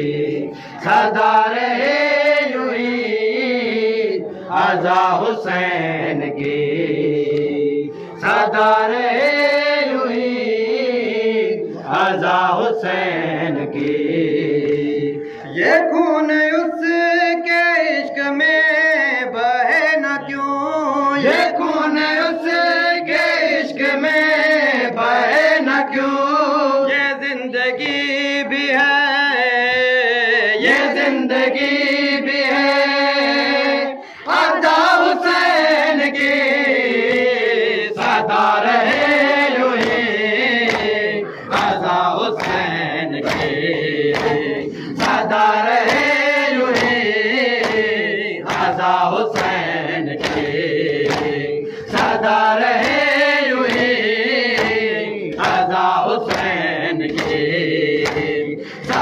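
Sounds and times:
man reciting into microphone: 0:00.0 - 0:59.0
men chanting: 0:00.0 - 0:59.0
hands slapping chests: 0:38.0 - 0:59.0.

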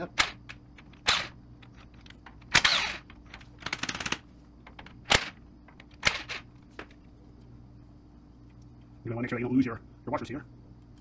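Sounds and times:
impact wrench spinning nuts: 0:00.2 - 0:01.8, 0:02.4 - 0:04.2.

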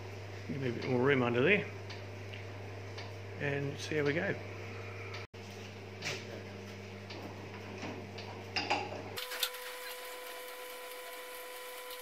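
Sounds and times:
steady low hum: 0:00.0 - 0:09.2.

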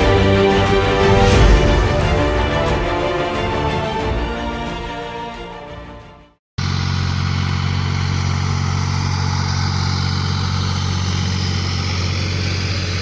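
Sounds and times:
tractor engine mowing grass: 0:06.6 - 0:13.0.

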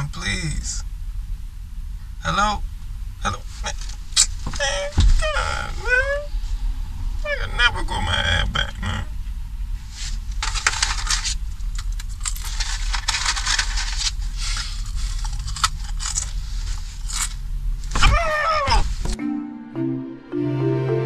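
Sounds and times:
steady low rumble: 0:00.0 - 0:19.2
man wailing: 0:04.6 - 0:06.3
rustling and clattering handling: 0:10.0 - 0:18.2.

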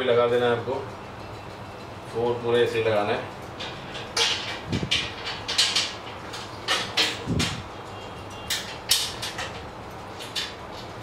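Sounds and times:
metal scraping and knocking: 0:03.6 - 0:07.6.

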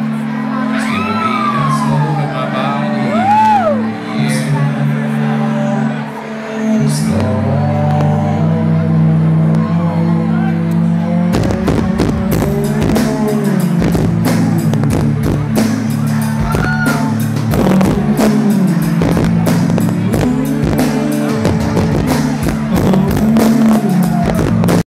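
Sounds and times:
low keyboard or bass notes: 0:00.0 - 0:24.8
person singing: 0:00.0 - 0:24.9
drum hits: 0:11.3 - 0:24.8.

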